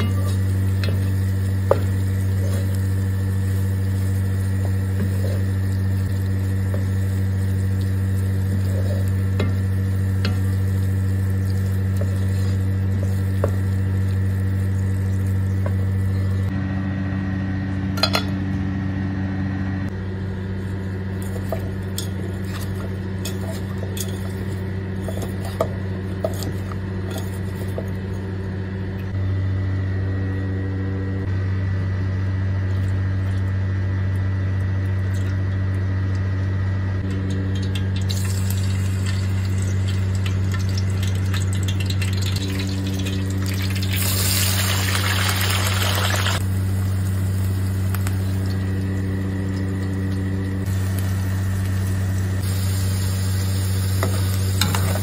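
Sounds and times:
low hum: 0:00.0 - 0:55.0.

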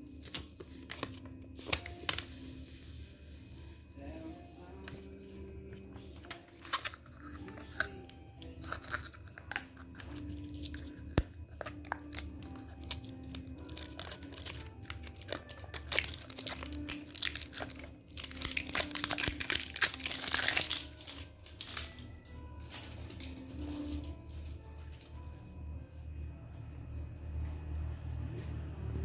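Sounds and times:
soft background music: 0:00.0 - 0:29.0
plastic packaging crinkling: 0:06.2 - 0:25.3.

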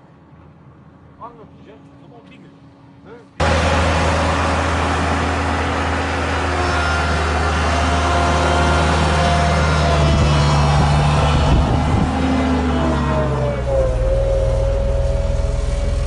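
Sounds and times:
diesel engine droning: 0:03.4 - 0:16.0.

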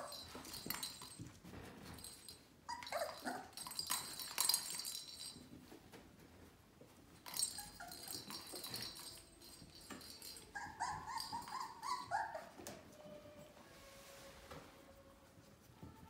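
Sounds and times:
puppies whimpering: 0:10.2 - 0:13.0.

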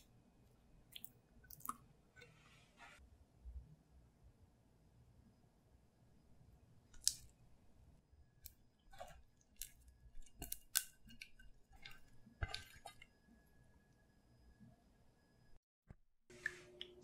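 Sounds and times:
wet clicks and smacks: 0:00.9 - 0:01.8, 0:06.9 - 0:07.3, 0:08.4 - 0:13.1.

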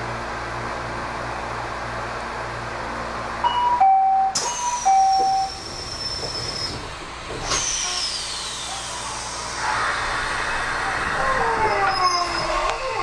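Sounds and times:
two-tone door chime: 0:03.5 - 0:05.5.

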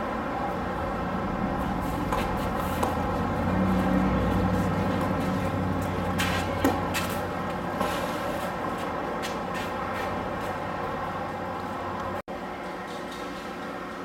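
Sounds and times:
steady low hum: 0:00.0 - 0:14.0
tennis racket hitting ball: 0:01.9 - 0:03.2.

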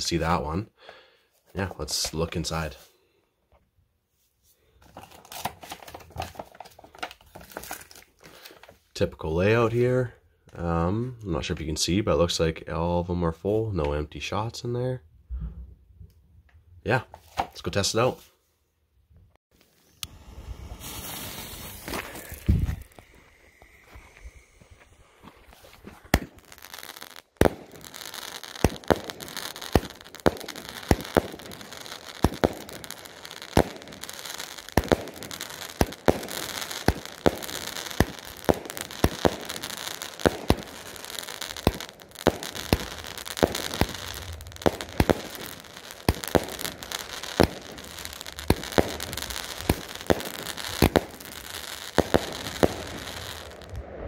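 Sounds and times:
firework crackling: 0:05.0 - 0:08.6, 0:19.7 - 0:54.0
firework shots firing: 0:20.5 - 0:23.3, 0:25.8 - 0:54.0.

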